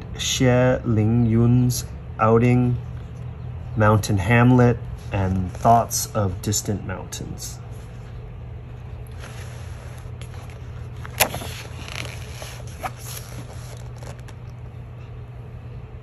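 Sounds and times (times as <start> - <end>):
steady low hum: 0.0 - 16.0
paper pages rustling: 9.1 - 14.7
page snapping: 11.0 - 14.6.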